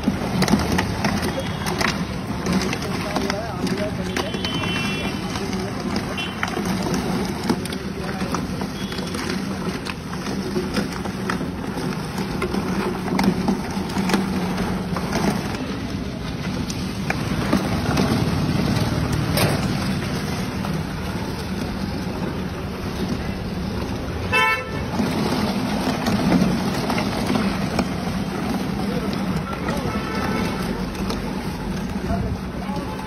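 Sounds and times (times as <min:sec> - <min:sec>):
traffic rumble and hum: 0:00.0 - 0:33.0.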